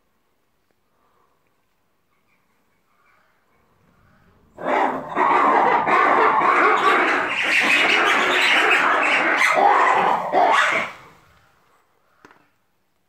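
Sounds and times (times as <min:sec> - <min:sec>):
lemurs calling in chorus: 0:04.6 - 0:11.1.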